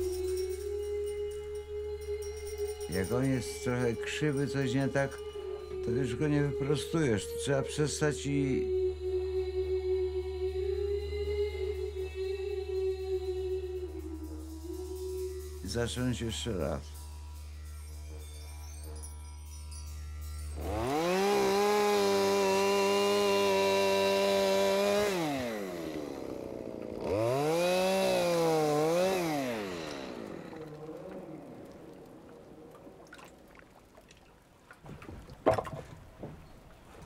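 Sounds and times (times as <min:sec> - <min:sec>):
chainsaw revving: 0:20.4 - 0:32.5.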